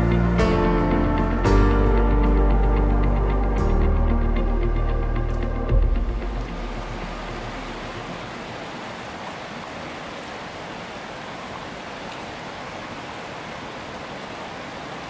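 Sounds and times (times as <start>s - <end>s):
stream rushing over boulders: 5.3s - 15.0s.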